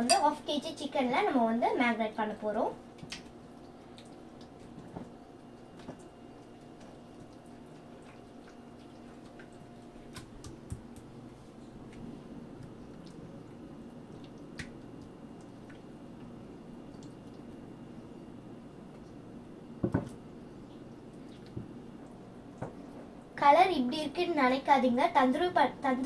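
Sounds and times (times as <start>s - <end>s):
steady low hum: 0.0s - 26.0s
wet squelches of marinade: 2.9s - 17.7s.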